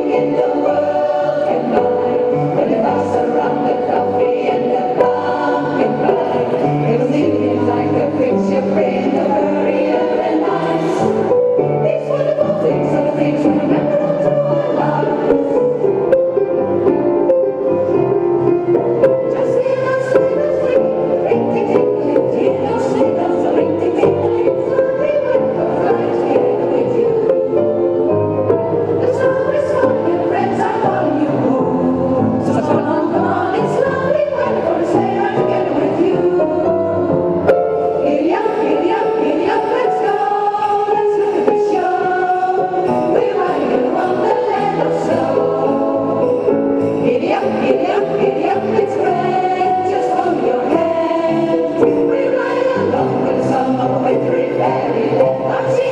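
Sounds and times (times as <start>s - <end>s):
women's choir singing in harmony: 0.0s - 55.9s.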